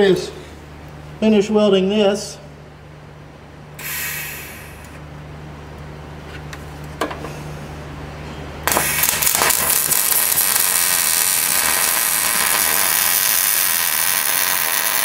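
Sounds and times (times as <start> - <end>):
welding arc crackling: 8.6 - 15.0.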